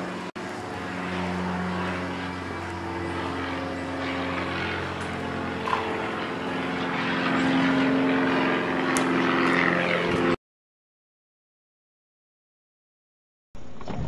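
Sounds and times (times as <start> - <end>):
motor humming: 0.0 - 10.4.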